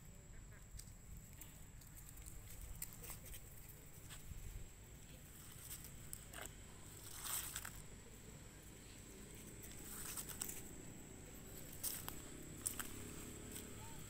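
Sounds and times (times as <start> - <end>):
soft rustles: 9.3 - 14.0.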